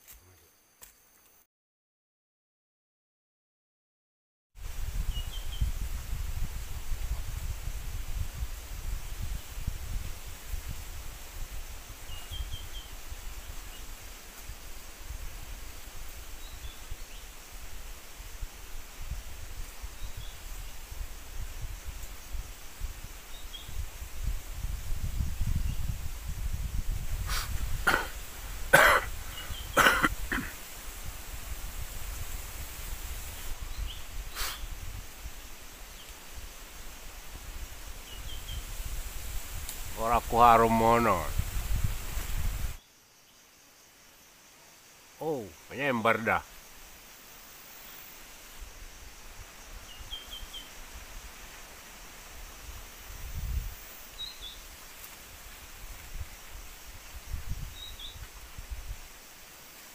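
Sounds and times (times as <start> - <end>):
steady outdoor hiss: 0.0 - 1.5, 4.6 - 59.9
wind rumbling on microphone: 4.6 - 42.8, 48.3 - 59.3
faint high bird chirps: 49.9 - 50.7, 57.7 - 58.3.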